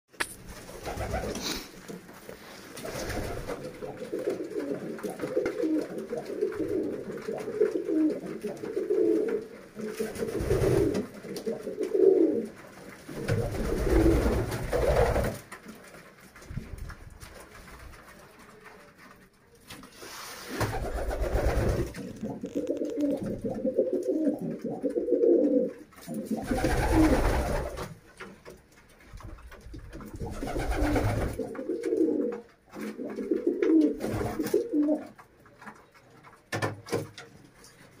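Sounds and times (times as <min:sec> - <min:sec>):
pigeons cooing: 0:00.8 - 0:02.0, 0:02.8 - 0:15.4, 0:20.5 - 0:27.9, 0:30.0 - 0:35.2.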